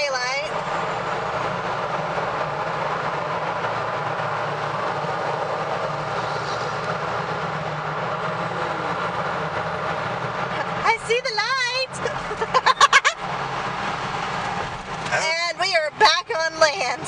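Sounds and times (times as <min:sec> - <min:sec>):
car road and tyre noise: 0:00.0 - 0:17.0.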